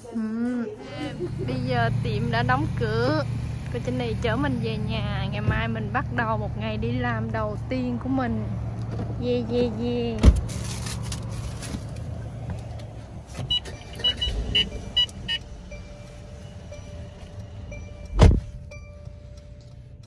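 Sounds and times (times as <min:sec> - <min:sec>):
car engine hum: 0:00.0 - 0:20.0
car door shutting: 0:13.3 - 0:15.6, 0:18.0 - 0:18.7
high warning chimes: 0:13.5 - 0:19.9.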